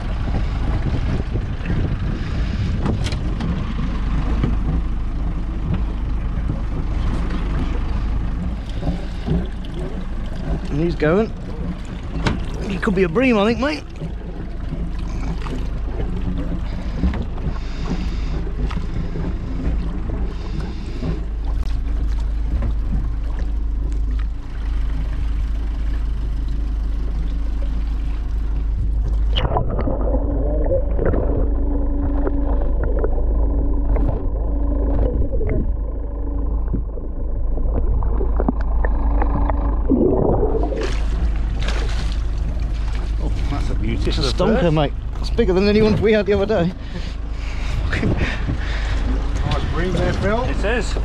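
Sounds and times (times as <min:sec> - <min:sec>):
boat low rumble: 0:00.0 - 0:51.0
sea noise: 0:00.0 - 0:51.0
underwater low hum: 0:00.0 - 0:51.0
bubbling splashes: 0:08.6 - 0:26.0, 0:27.2 - 0:44.8.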